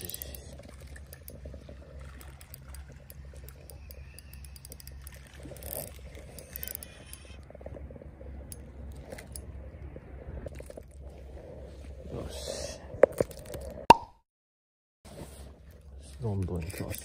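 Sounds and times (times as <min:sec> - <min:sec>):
fishing reel clicking and whirring: 0:00.0 - 0:07.5
steady low hum: 0:00.0 - 0:13.9.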